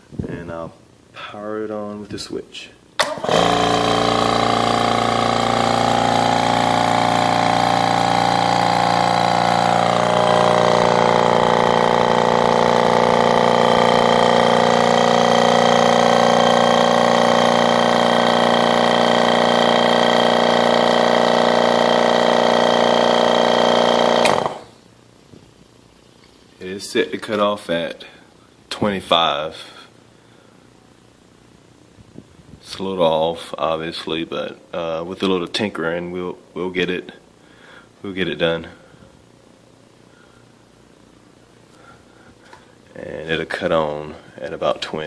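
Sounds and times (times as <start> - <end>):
electric vacuum pump running: 3.0 - 26.6.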